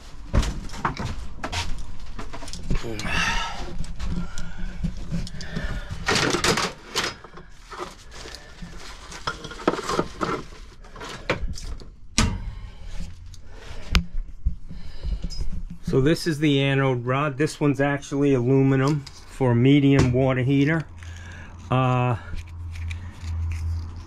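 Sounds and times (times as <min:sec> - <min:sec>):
steady low hum: 0:00.0 - 0:24.0
tools and fittings rattling: 0:03.8 - 0:11.8.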